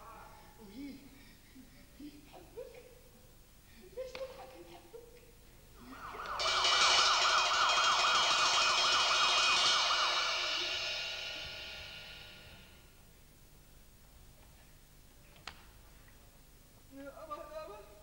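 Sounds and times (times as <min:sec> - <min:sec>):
siren wailing: 0:05.8 - 0:12.7.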